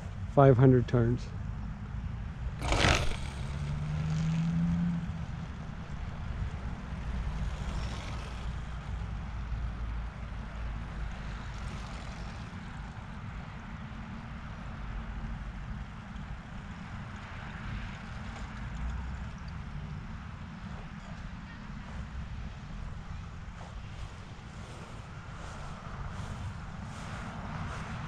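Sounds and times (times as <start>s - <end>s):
faint propeller hum: 0.0s - 28.0s
low outdoor rumble: 0.0s - 28.0s
rush of model plane thrown: 2.6s - 4.4s.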